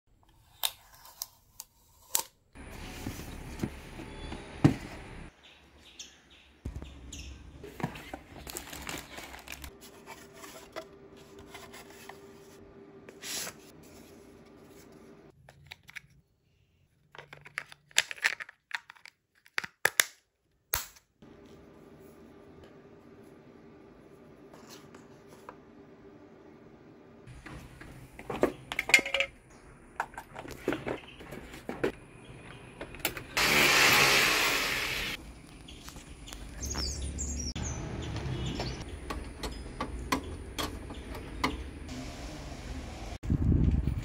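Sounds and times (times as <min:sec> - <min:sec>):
paper rustling and tearing: 0:07.7 - 0:12.5.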